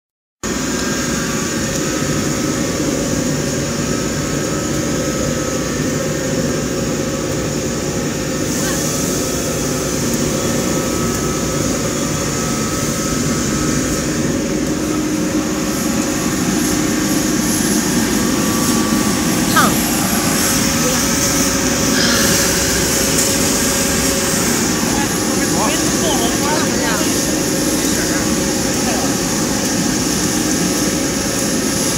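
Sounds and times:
steady machine hums: 0.4s - 31.9s
loud rushing machine noise: 7.6s - 31.9s.

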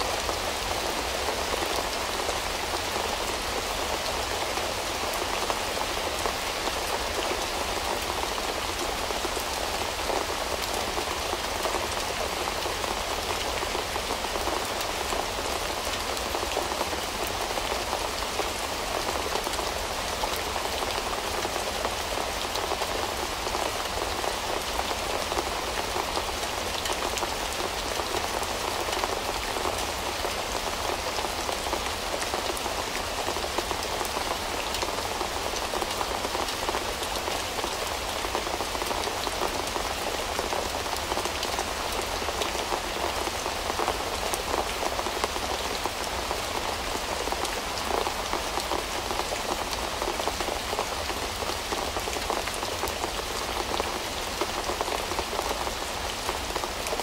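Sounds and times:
rain drops ticking on hard surface: 0.0s - 57.0s.

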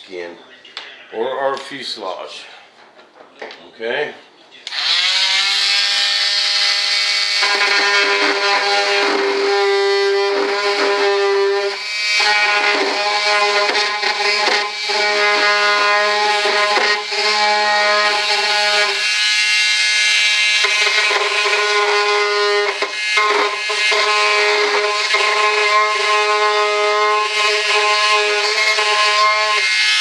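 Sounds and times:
rotary tool whining: 4.7s - 30.0s.

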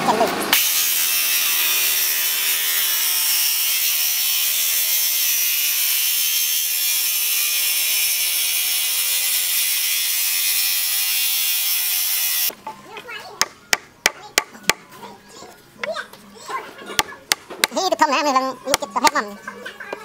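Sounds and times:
circular saw cutting wood: 0.5s - 12.5s.

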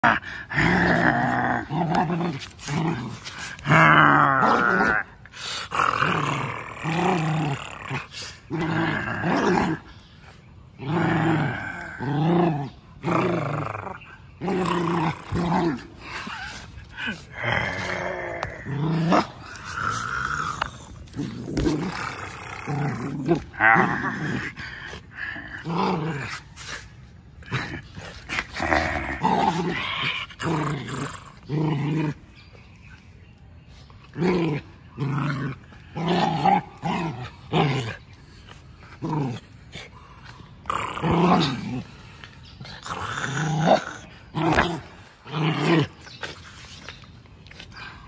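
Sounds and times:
puppy growling: 10.7s - 26.8s, 34.1s - 46.9s.

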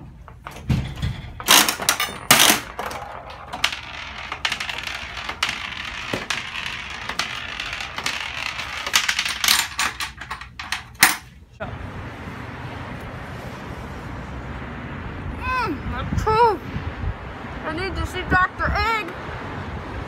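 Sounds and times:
metallic clunks of coin mechanism: 0.5s - 4.6s
gumball rolling rattle on spiral track: 1.5s - 11.0s.

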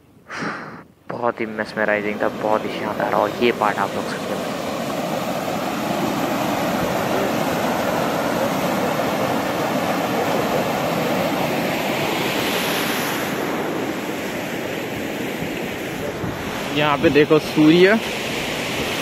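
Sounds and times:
river rapids rushing over boulders: 1.9s - 13.4s.

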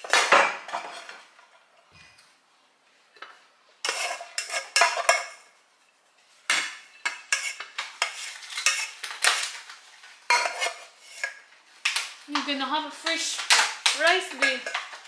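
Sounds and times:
rice paddle scraping metal pot: 3.8s - 5.2s, 7.0s - 9.0s, 10.3s - 11.4s.

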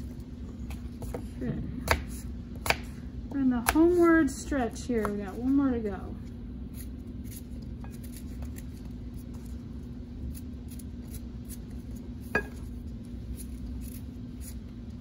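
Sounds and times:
knife cutting an apple: 0.7s - 3.0s, 6.7s - 9.6s, 10.2s - 14.8s.

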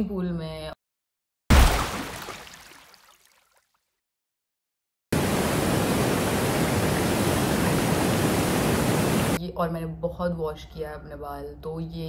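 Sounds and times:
waterfall rushing into pool: 1.5s - 2.9s, 5.2s - 9.4s.

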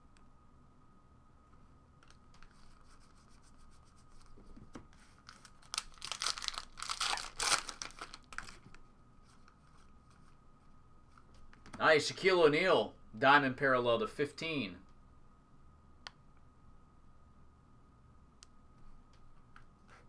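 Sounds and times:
foil wrapper tearing: 5.2s - 8.6s.

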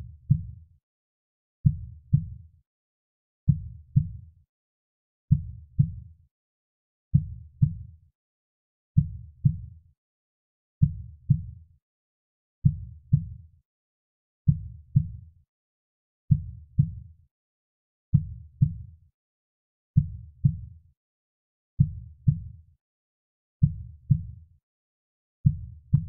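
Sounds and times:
slow heartbeat: 25.4s - 26.0s.

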